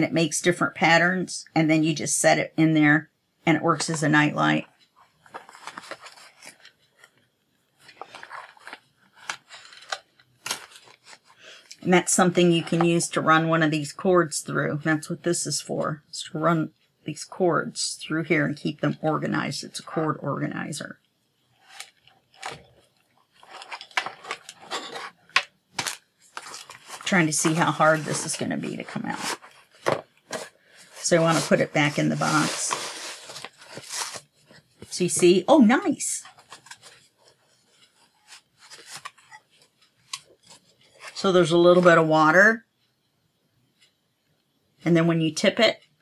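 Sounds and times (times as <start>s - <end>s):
cardboard box rustling and scraping: 5.2s - 6.6s, 7.9s - 10.0s, 23.4s - 25.2s, 25.8s - 35.0s.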